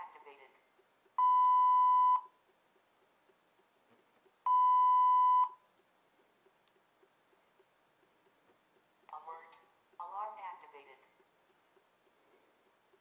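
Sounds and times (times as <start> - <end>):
electronic alarm beeps: 1.2 - 2.4, 4.5 - 5.7.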